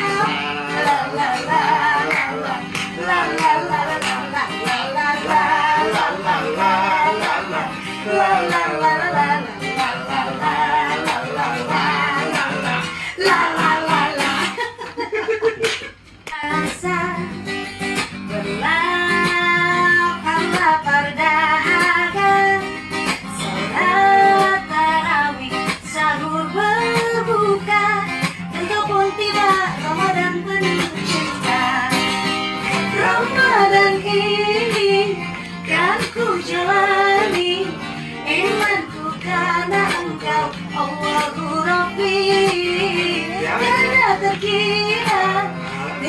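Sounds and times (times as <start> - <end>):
person singing: 0.0 - 15.6, 16.3 - 17.4, 18.3 - 46.0
acoustic guitar strumming: 0.0 - 46.0.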